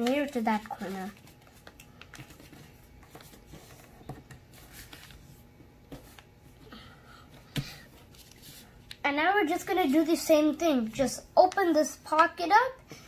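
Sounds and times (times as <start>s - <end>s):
paper rustling: 0.0s - 6.3s, 8.0s - 9.0s.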